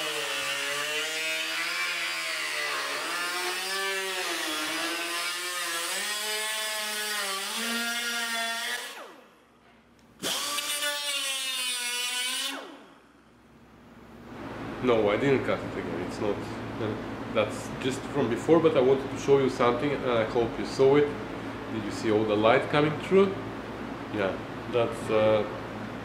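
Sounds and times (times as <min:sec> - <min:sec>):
cut-off wheel cutting steel: 0:00.0 - 0:09.3, 0:10.2 - 0:13.0.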